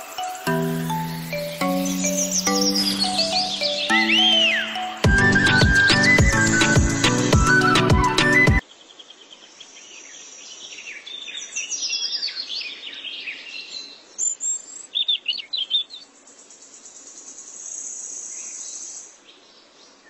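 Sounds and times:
steady high buzz: 0.0s - 7.3s
bird chirping and trilling: 0.0s - 7.8s.

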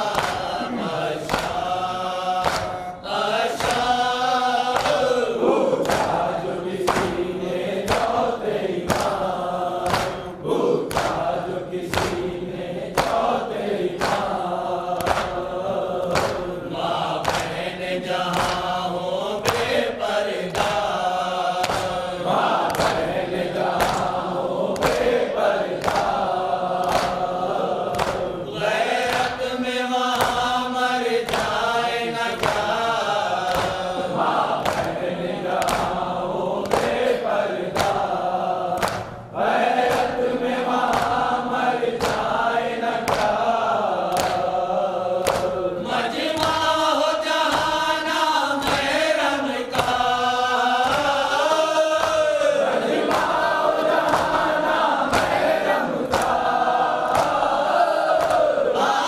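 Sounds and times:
male group chanting a lament: 0.0s - 59.0s
man leading chant into microphone: 0.0s - 59.0s
hands beating on chests: 10.9s - 11.2s, 57.1s - 57.5s.

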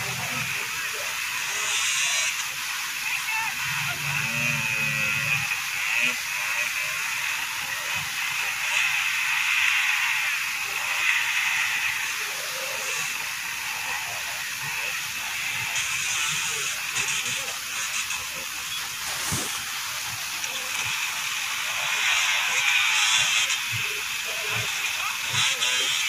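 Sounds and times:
dirt bike engines revving: 10.1s - 21.1s.

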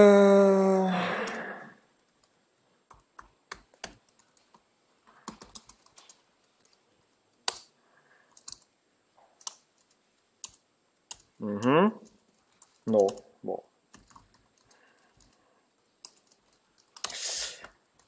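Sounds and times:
laptop keyboard typing: 1.2s - 6.8s, 7.4s - 7.7s, 8.3s - 8.7s, 9.3s - 13.2s, 13.9s - 18.0s.

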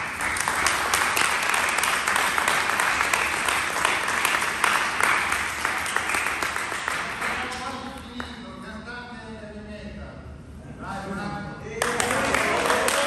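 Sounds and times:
crowd applauding: 0.0s - 8.3s, 11.8s - 13.0s.

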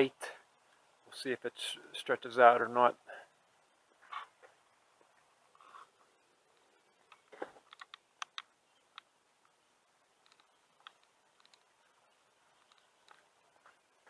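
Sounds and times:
faint clicks and taps: 6.6s - 9.6s, 10.2s - 11.7s, 12.5s - 13.8s.

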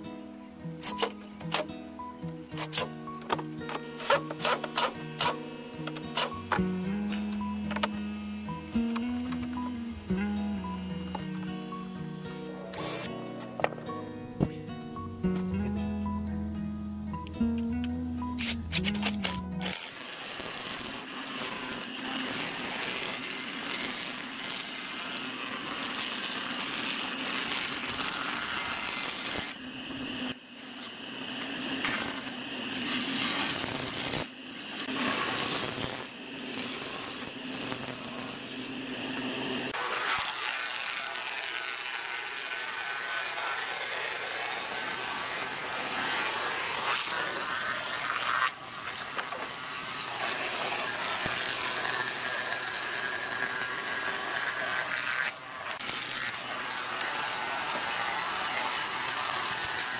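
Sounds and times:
planer cutting wooden boards: 0.8s - 14.6s, 18.4s - 59.9s.

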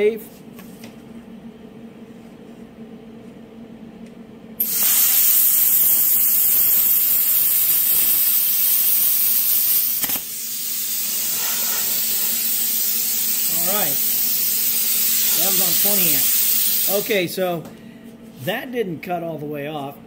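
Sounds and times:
air hissing from torch: 4.6s - 17.1s
plasma arc cutoff click: 4.6s - 17.1s
plasma arc hissing: 4.6s - 17.2s.

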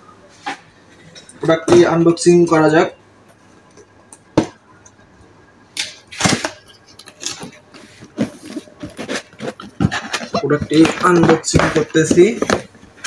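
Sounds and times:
cardboard scraping and rustling: 7.1s - 12.8s.

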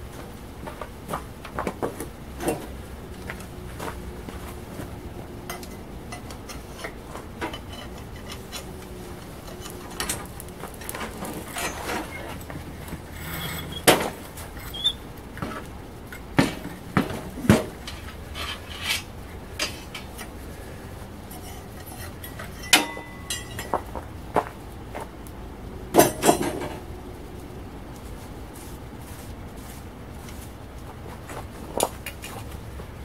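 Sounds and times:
low steady rumble: 2.1s - 33.0s
metal tongs clanking on steel: 5.4s - 15.0s, 17.5s - 20.4s, 21.2s - 23.9s, 25.9s - 26.8s.

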